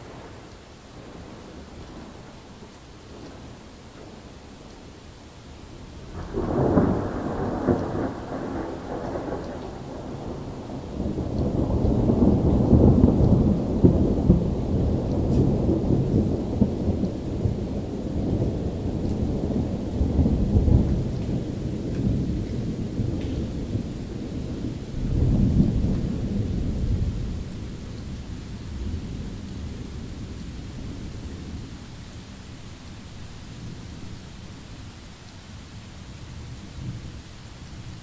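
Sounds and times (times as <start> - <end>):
steady rain: 0.0 - 38.0
thunder clap and rumble: 6.1 - 31.8.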